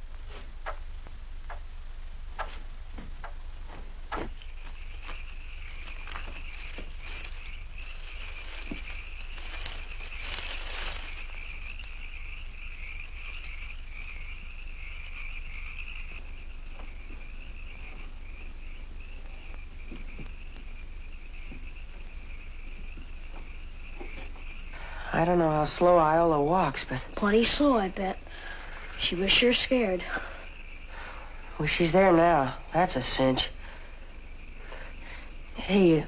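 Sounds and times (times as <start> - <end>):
constant low hum: 0.0 - 36.0
crickets chirping: 0.0 - 36.0.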